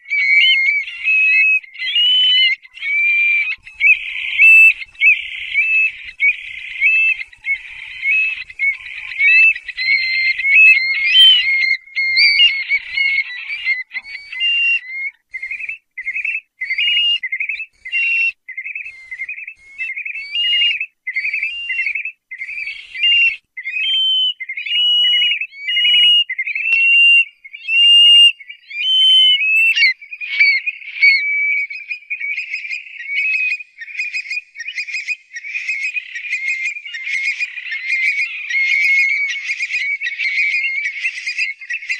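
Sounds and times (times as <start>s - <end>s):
birds calling shrill whistles: 0.0s - 41.9s.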